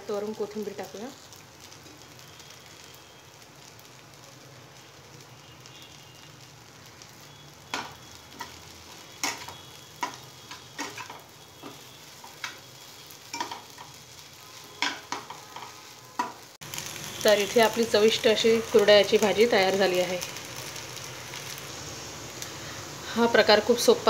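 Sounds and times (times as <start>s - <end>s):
food sizzling in a pan: 0.0s - 24.0s
spatula scraping a pan: 7.8s - 16.4s.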